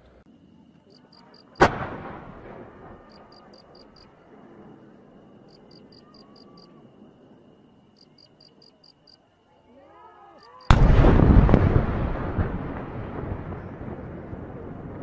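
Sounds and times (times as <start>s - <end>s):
loud firework bang echoing: 1.6s - 3.1s, 10.7s - 15.0s.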